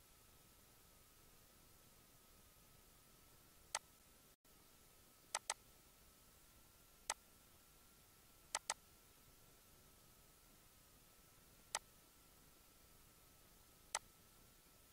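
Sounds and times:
faint steady hiss: 0.0 - 14.9
computer mouse clicking: 5.3 - 5.6, 8.5 - 8.8.

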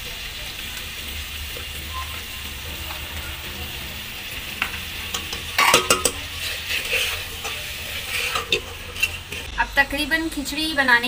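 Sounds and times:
food sizzling in a pot: 0.0 - 11.0
metal ladle scraping and clinking: 1.9 - 9.5.

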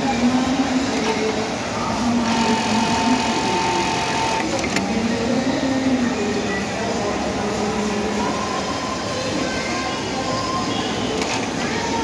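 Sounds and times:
higher whine and hiss: 0.0 - 6.9
sewing machine whirring: 2.2 - 4.8.

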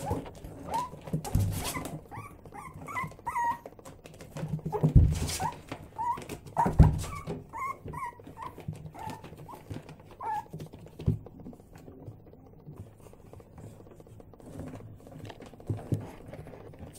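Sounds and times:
puppies yipping and whimpering: 0.0 - 10.6
scuffling and knocks: 4.0 - 12.1.

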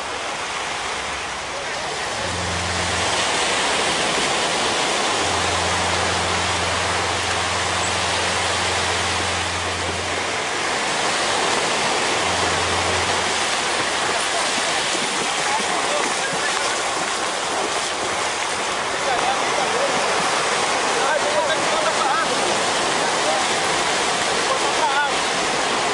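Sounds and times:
small waves breaking on beach: 0.0 - 25.9
low hum: 1.1 - 15.4.

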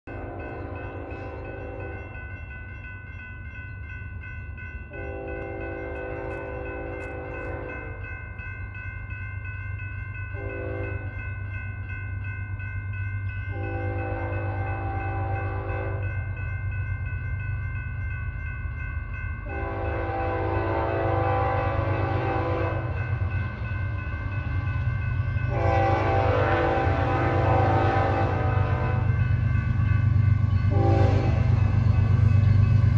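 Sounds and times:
train horn blasts: 0.1 - 2.1, 4.9 - 7.9, 10.4 - 11.1, 13.5 - 16.1, 19.4 - 23.0, 25.5 - 29.2, 30.6 - 31.7
diesel locomotive rumble: 13.2 - 32.9.

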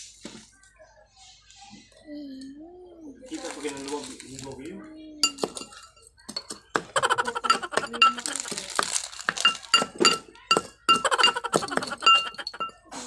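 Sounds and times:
spoon clinking against glass bowl: 5.2 - 12.9.

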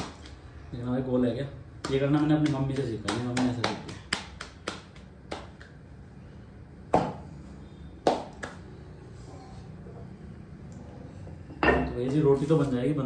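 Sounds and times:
dough patted between palms: 0.0 - 0.5, 1.7 - 5.9, 8.0 - 8.7.

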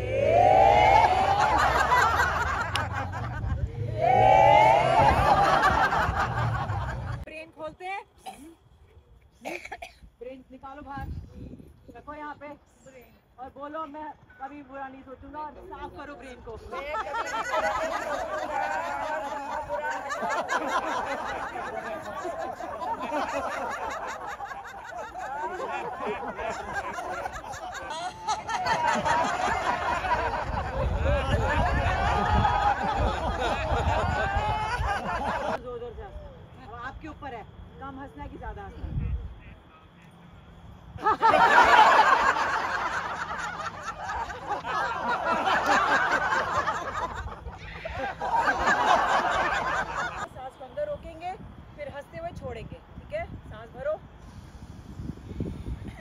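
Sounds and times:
group of women laughing: 0.0 - 7.3, 16.6 - 35.6, 41.0 - 50.3.

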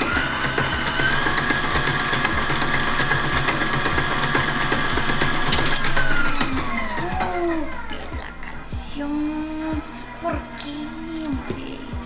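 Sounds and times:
mixer clicks: 0.0 - 7.9
stand mixer motor running: 0.0 - 8.2.

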